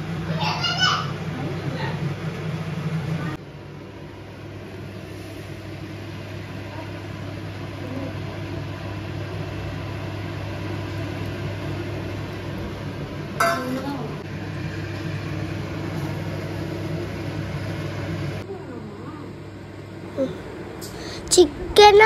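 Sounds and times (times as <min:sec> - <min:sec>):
gas stove hum: 0:00.0 - 0:22.0
egg sizzling in a pan: 0:04.1 - 0:18.4.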